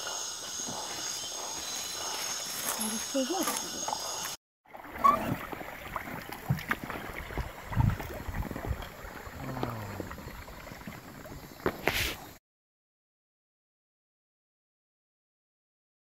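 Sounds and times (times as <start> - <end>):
kayak paddles splashing water: 0.0 - 12.4.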